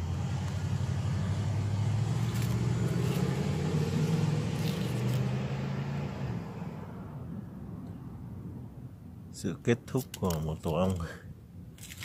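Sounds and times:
vehicle engine running: 0.0 - 6.9.

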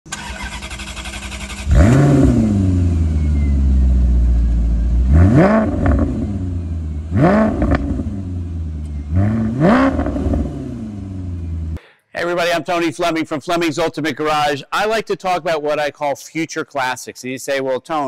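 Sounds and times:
starter motor cranking: 0.1 - 2.0
car engine revving and idling: 0.1 - 11.8.

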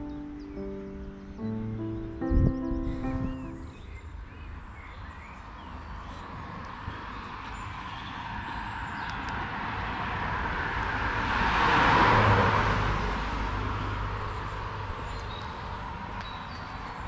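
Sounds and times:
car passing by: 6.4 - 16.2.

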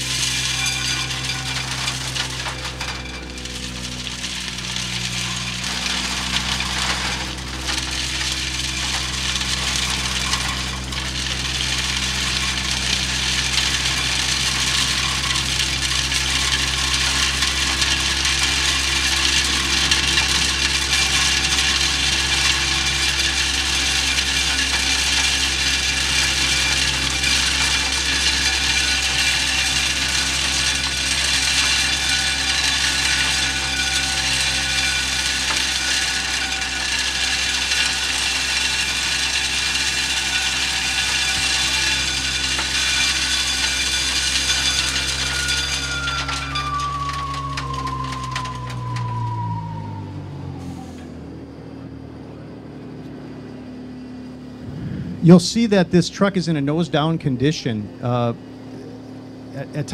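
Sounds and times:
debris sucked up hose: 0.0 - 51.2
vacuum air rushing: 54.5 - 55.3.

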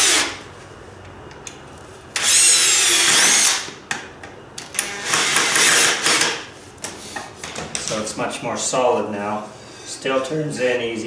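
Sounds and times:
cordless drill whine: 2.2 - 3.7.

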